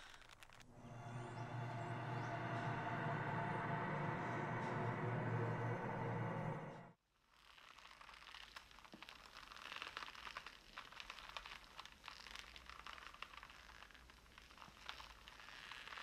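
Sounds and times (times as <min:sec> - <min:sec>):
rope creaking and crackling: 0:00.0 - 0:00.7, 0:07.2 - 0:16.0.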